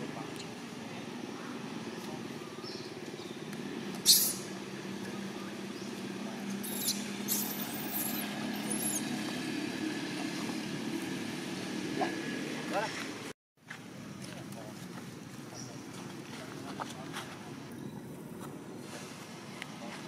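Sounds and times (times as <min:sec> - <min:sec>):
baby monkey squealing: 0:04.0 - 0:04.5, 0:06.6 - 0:09.2.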